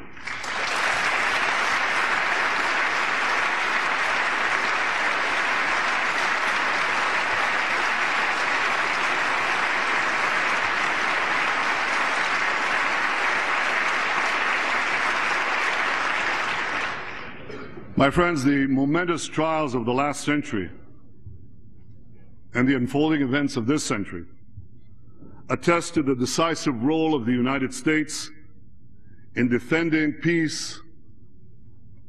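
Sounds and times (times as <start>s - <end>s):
audience applause: 0.2s - 17.4s.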